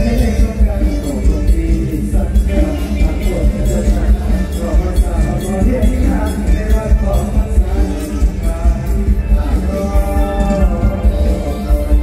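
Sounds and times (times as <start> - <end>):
band music with driving beat: 0.0 - 12.0.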